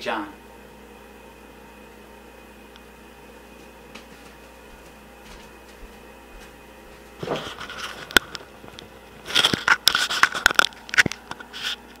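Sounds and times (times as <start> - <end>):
rustling and scraping: 3.6 - 12.0.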